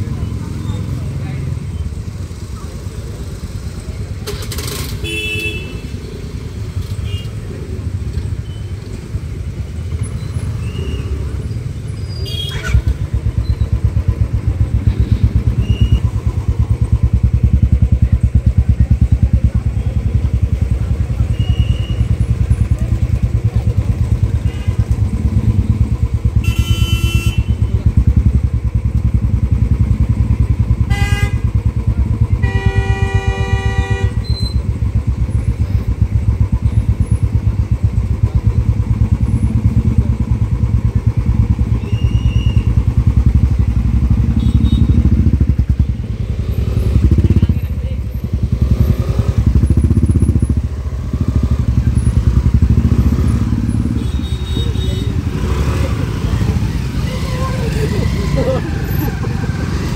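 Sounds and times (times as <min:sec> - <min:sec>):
motorcycle engine idling: 0:00.0 - 0:59.9
traffic: 0:00.0 - 0:59.9
vehicle horns: 0:04.6 - 0:06.1, 0:06.8 - 0:07.5, 0:12.0 - 0:12.9, 0:24.2 - 0:25.4, 0:26.2 - 0:27.9, 0:30.7 - 0:34.8, 0:41.6 - 0:43.1, 0:43.9 - 0:47.4, 0:50.4 - 0:55.9.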